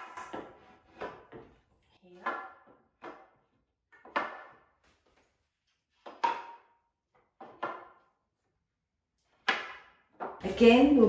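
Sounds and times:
wooden frame pieces knocking: 2.2s - 5.2s, 5.9s - 8.1s.

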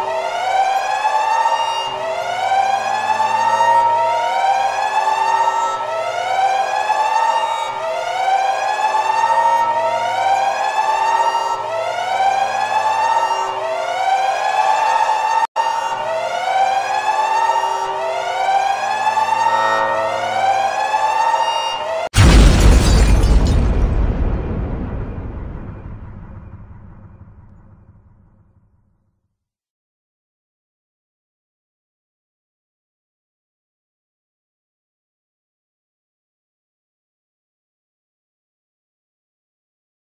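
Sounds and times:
electronic wailing siren: 0.0s - 27.9s.

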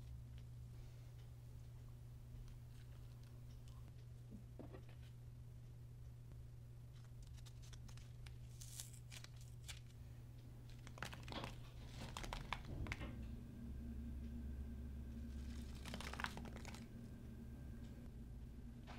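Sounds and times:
faint crinkly rustles: 2.4s - 4.1s, 10.6s - 13.2s.

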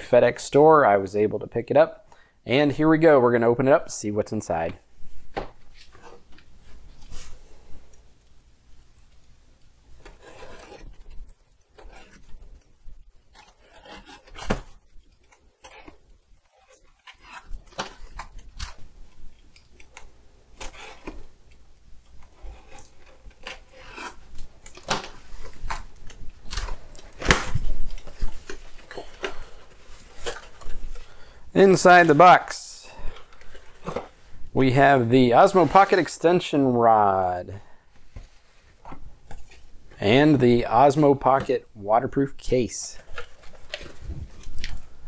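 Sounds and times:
cardboard scraping and rustling: 10.1s - 12.6s, 34.8s - 36.2s, 43.0s - 44.8s.

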